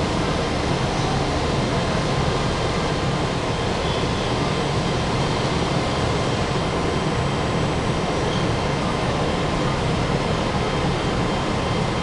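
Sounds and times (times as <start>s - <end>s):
electric locomotive fans whirring: 0.0s - 12.0s.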